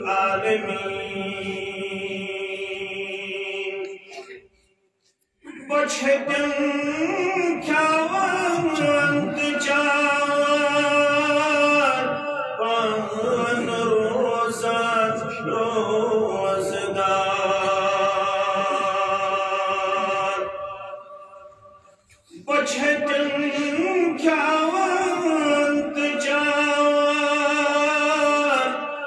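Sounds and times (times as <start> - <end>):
man chanting into microphones: 5.4 - 21.2, 22.2 - 29.0.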